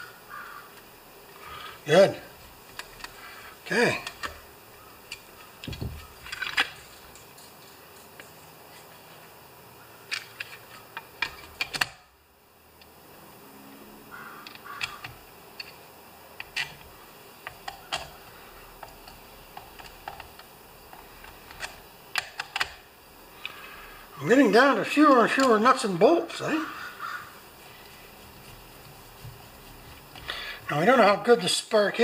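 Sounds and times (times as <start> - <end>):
small parts clicking and tapping: 2.4 - 3.3, 3.9 - 4.4, 5.0 - 8.8, 10.1 - 12.0, 14.4 - 15.8, 16.4 - 23.6.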